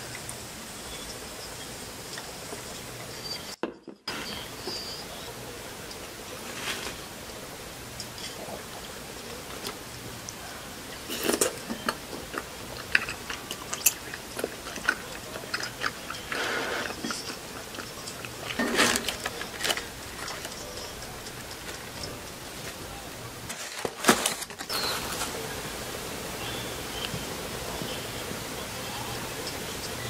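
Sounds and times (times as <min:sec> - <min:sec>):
paper and cardboard rustling: 0:06.3 - 0:07.1, 0:18.2 - 0:25.5
chewing food: 0:08.0 - 0:23.2.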